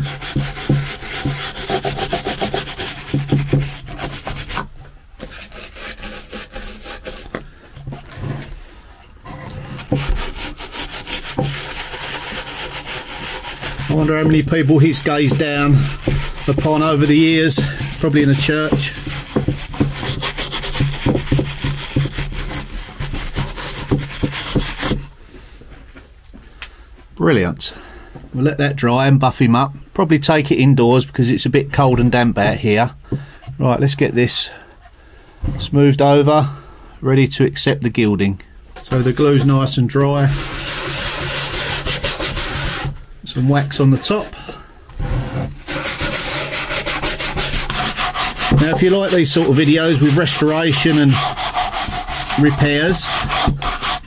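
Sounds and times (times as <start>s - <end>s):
brush scrubbing wood: 0.0s - 8.5s, 9.7s - 25.1s, 38.8s - 54.0s.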